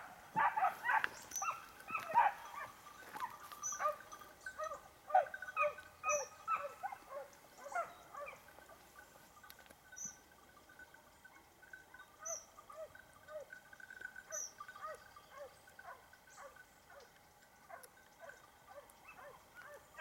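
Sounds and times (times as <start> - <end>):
dogs barking: 0.0 - 8.8, 14.2 - 17.1, 17.7 - 20.0
small bird high call: 3.6 - 4.0.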